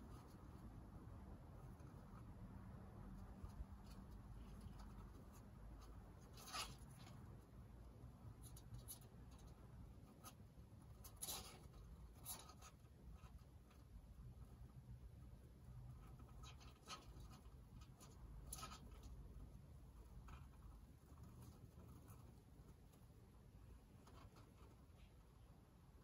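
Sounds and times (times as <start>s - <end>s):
hedgehog claws scratching: 3.2s - 7.4s, 8.4s - 13.9s, 15.9s - 24.9s.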